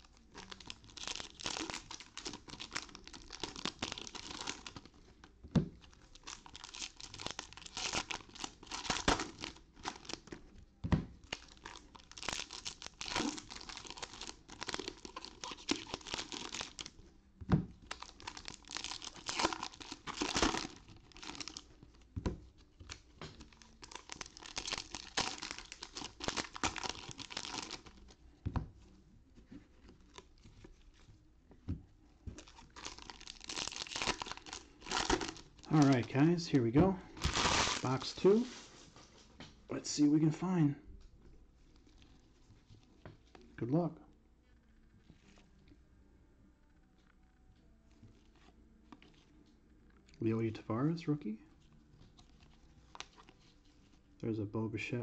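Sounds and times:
foil wrappers tearing and crinkling: 0.0 - 4.9, 6.0 - 10.4, 11.2 - 17.0, 17.8 - 21.7, 23.4 - 28.0, 32.4 - 36.3, 37.2 - 38.4.

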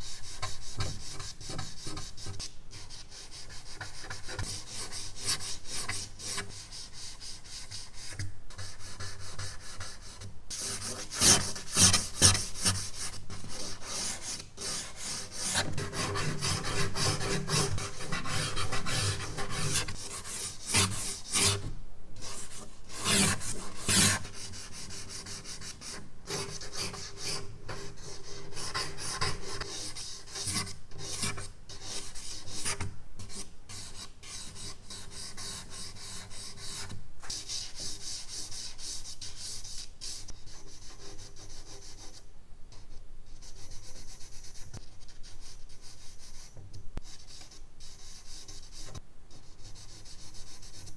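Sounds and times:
charcoal scratching on paper: 0.0 - 21.6, 43.4 - 50.9.

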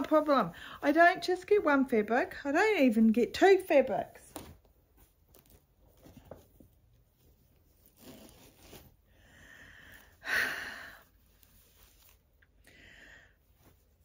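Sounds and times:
fabric and bags rustling: 0.0 - 1.2, 4.3 - 9.1.

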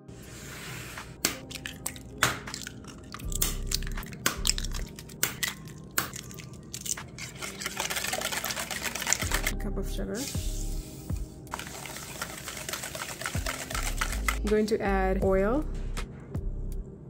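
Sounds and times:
crunchy scraping in bowl: 2.5 - 9.5.

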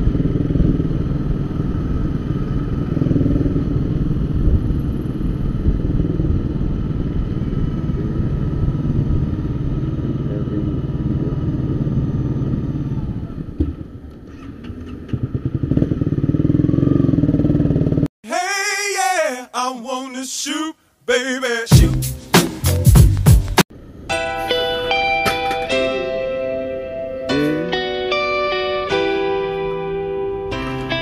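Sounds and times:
motorcycle engine running: 0.0 - 18.1.

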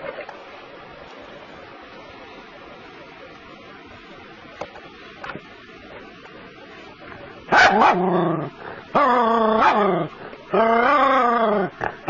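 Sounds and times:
small dog barking: 7.5 - 8.1, 9.6 - 9.8.

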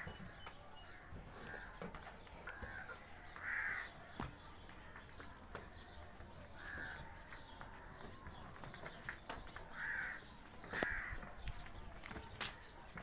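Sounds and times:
crow cawing: 2.5 - 4.0, 6.6 - 7.0, 9.8 - 10.2, 10.8 - 11.2.

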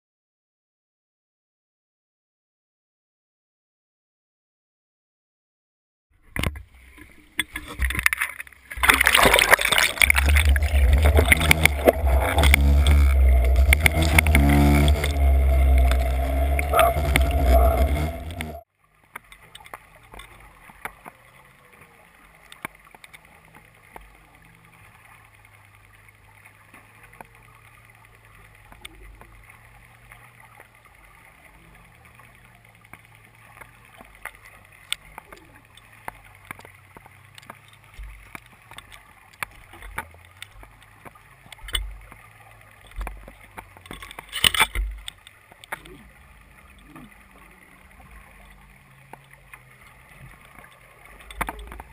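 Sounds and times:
steady low hum: 8.8 - 18.6
loud low rumble: 9.9 - 18.6.

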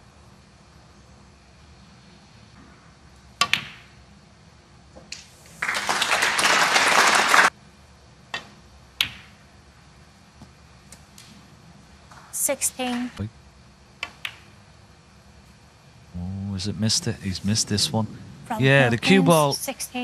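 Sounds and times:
audience applause: 5.6 - 7.5
snooker balls clicking: 8.3 - 9.4, 14.0 - 14.6.

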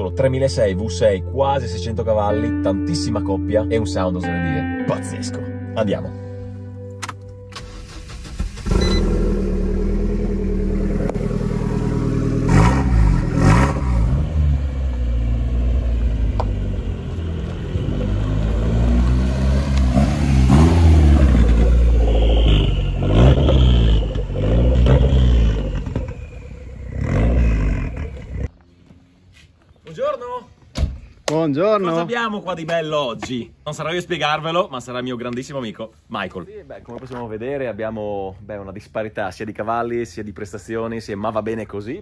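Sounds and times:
car engine revving: 7.6 - 28.6.

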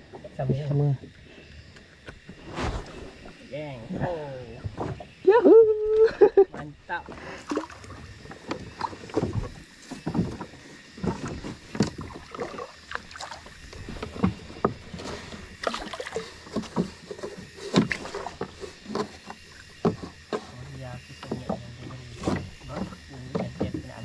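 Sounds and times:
rope scraping: 2.3 - 3.4.

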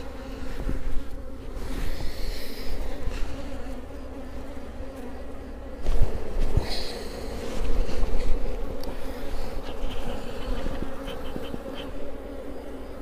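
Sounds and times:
honeybees buzzing: 0.0 - 13.0
fabric brushing microphone: 5.8 - 12.0.

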